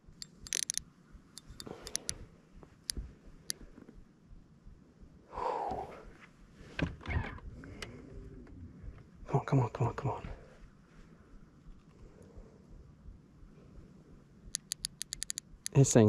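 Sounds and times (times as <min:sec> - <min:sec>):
light clicks: 0:00.0 - 0:02.2, 0:14.5 - 0:15.8
man breathing hard: 0:05.2 - 0:06.2.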